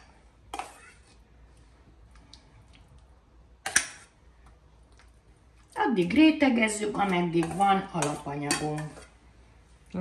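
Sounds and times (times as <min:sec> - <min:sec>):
utensil clinking against a dish: 0:06.9 - 0:09.1.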